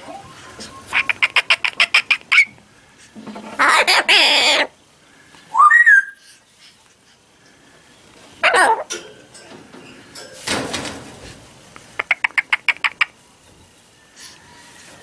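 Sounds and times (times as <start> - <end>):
macaw calling: 0.6 - 2.6, 5.5 - 6.4, 12.0 - 13.2.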